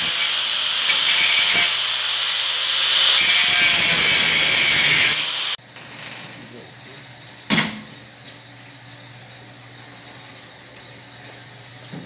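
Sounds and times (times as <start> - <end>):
angle grinder cutting metal: 0.0 - 5.6.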